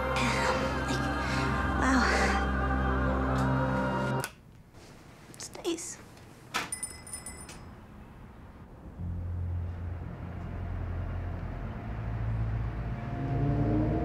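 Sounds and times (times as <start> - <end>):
low rumbling drone: 0.0 - 4.2, 8.7 - 14.0.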